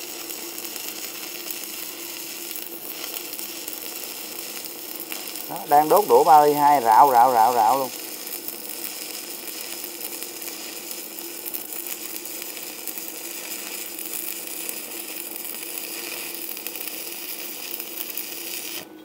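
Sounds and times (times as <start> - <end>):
welding arc crackling: 0.0 - 18.9.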